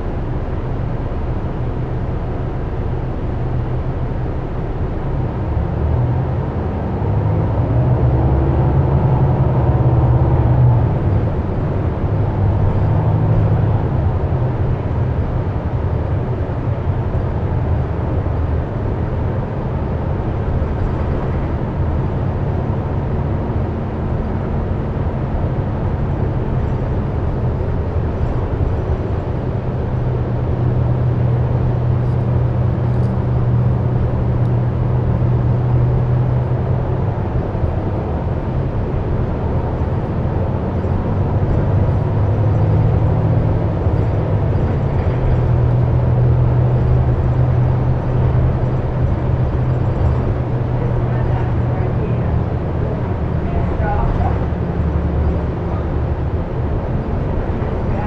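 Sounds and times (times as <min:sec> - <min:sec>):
bus engine drone: 0:00.0 - 0:58.0
road and tyre noise: 0:00.0 - 0:58.0.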